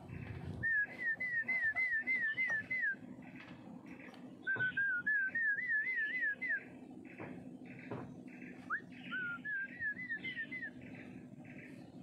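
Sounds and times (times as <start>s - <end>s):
sharp knocks: 7.2s - 8.1s.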